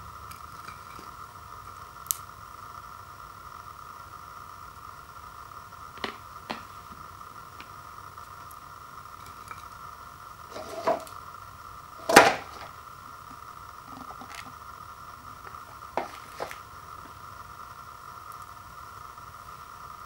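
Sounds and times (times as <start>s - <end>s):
faint steady hum: 0.0s - 20.0s
rustling scrape: 10.5s - 11.1s.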